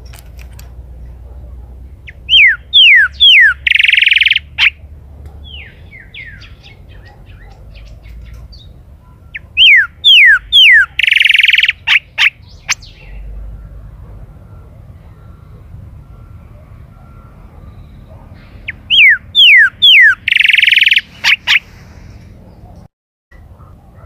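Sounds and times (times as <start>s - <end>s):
bird singing whistles and trills: 2.1s - 4.7s, 5.4s - 13.2s, 15.0s - 21.7s.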